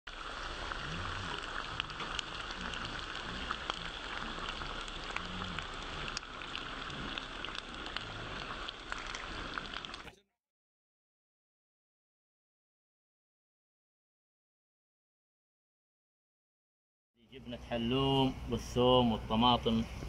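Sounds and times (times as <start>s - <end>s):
meat sizzling in a pot: 0.1s - 10.1s.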